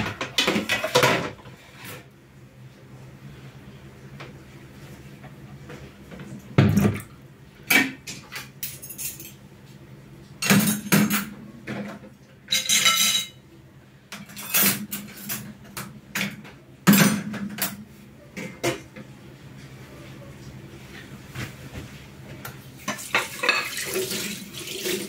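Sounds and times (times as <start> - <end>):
dishes and cutlery clattering: 0.0 - 1.5, 7.7 - 9.4, 10.4 - 13.4, 14.2 - 17.8, 22.8 - 24.3.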